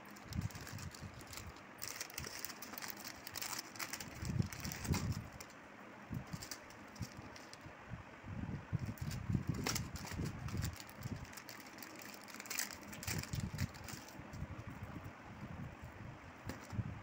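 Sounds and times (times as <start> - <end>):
plastic packets crinkling: 0.0 - 5.6, 6.2 - 7.6, 8.8 - 14.2.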